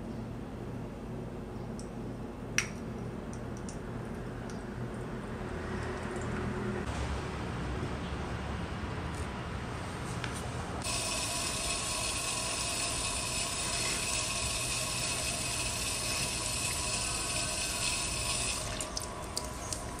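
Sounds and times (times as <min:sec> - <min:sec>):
water running from a hose: 0:10.8 - 0:20.0.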